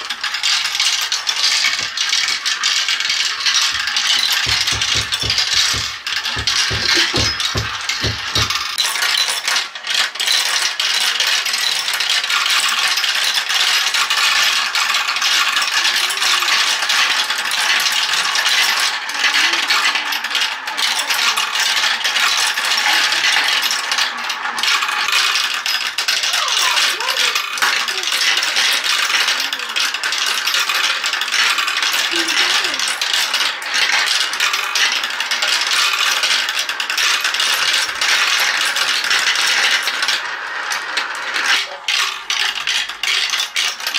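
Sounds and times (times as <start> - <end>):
marbles clattering through marble run: 0.0 - 43.9.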